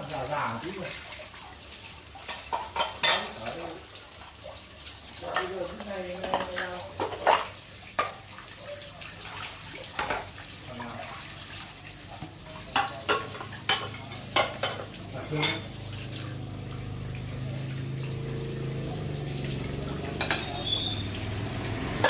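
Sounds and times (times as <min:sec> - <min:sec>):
kitchenware clinks and knocks: 0:02.3 - 0:03.4, 0:12.7 - 0:15.7, 0:20.1 - 0:21.1.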